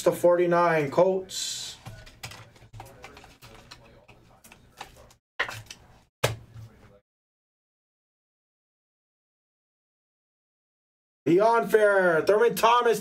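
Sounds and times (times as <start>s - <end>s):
trading cards clicking and rustling: 1.8s - 6.5s.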